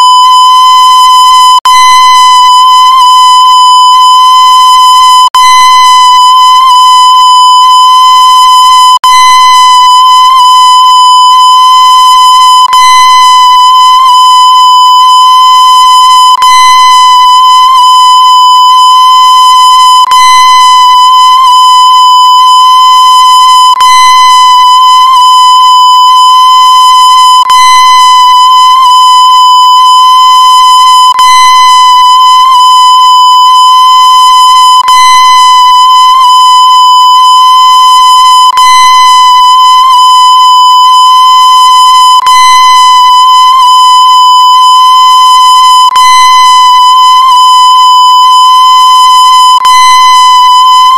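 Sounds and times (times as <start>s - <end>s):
high-pitched electronic tone: 0.0s - 50.9s.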